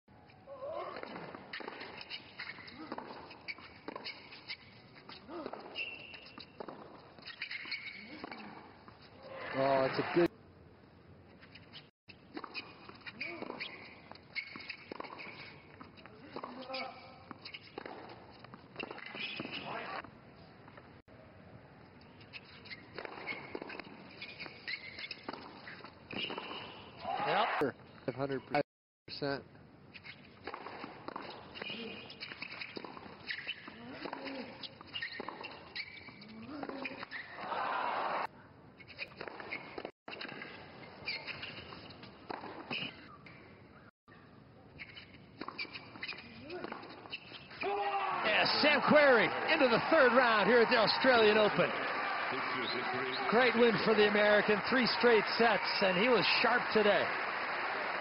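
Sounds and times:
players' footsteps: 44.9 - 58.0.

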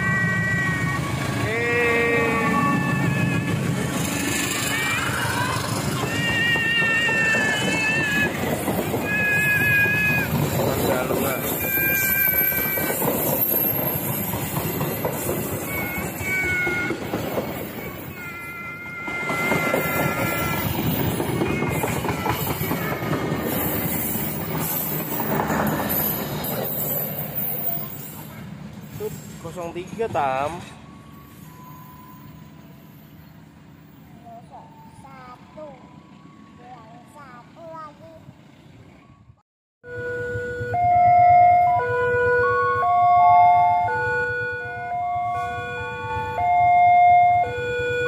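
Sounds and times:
train wheels rumbling on rail: 0.0 - 33.9
level crossing warning alarm: 15.3 - 22.0, 30.6 - 32.8, 39.8 - 48.0.

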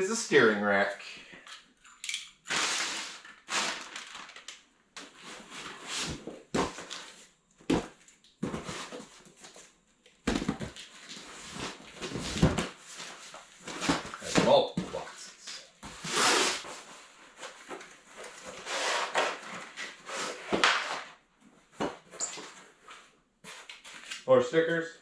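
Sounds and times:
plastic packaging crinkling: 2.5 - 4.6
cardboard boxes being opened: 5.2 - 9.7, 10.3 - 15.0.

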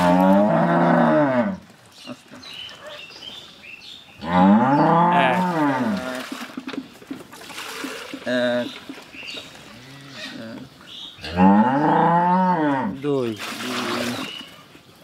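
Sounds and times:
cow mooing: 0.0 - 1.6, 4.2 - 6.2, 11.2 - 12.9.

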